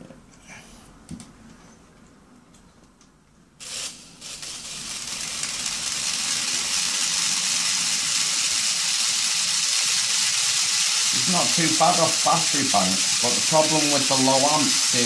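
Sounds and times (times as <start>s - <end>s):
electric helicopter rotor spinning: 3.6s - 15.0s.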